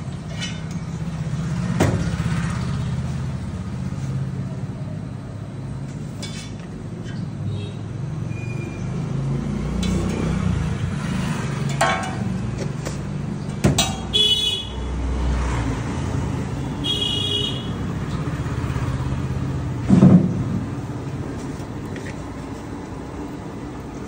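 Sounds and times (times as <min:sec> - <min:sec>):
gas burner roaring: 0:09.6 - 0:13.0.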